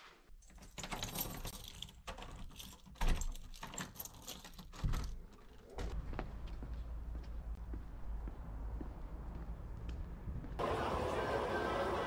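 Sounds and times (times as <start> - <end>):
keys jangling in door lock: 0.4 - 5.5.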